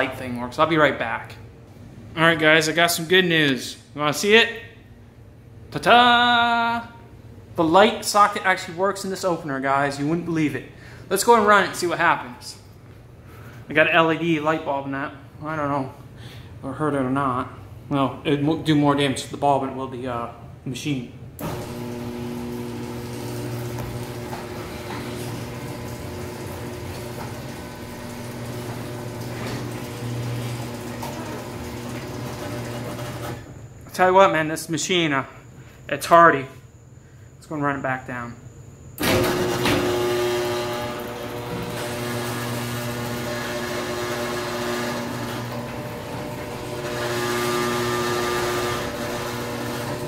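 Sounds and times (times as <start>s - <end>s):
garage door opener motor hum: 21.4s - 33.8s, 39.0s - 50.0s.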